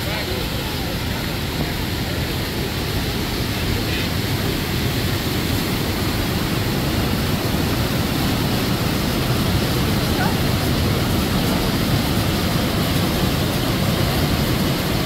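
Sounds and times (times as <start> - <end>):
rushing white water and waterfall: 0.0 - 15.0.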